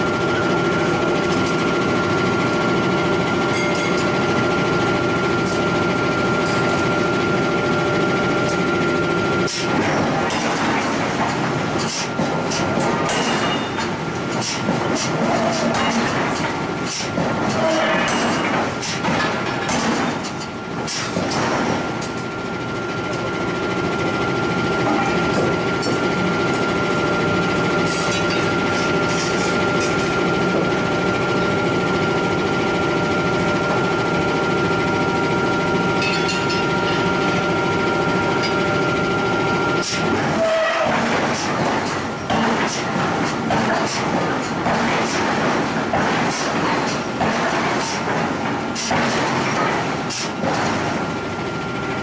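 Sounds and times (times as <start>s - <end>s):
forging hammer metal strikes: 12.9s - 13.9s, 36.0s - 37.2s
machinery drone: 20.9s - 42.4s.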